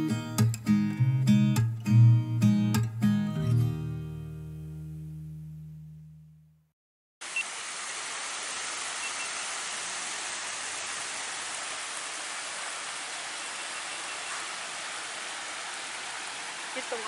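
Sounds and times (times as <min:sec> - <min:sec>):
small waterfall splashing: 0:07.2 - 0:17.0.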